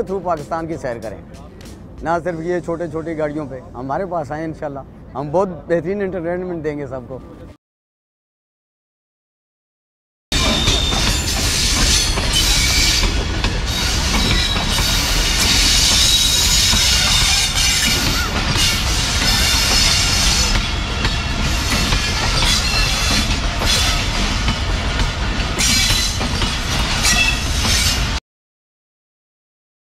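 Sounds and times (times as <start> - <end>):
train wheels rumbling over rails: 10.4 - 28.2.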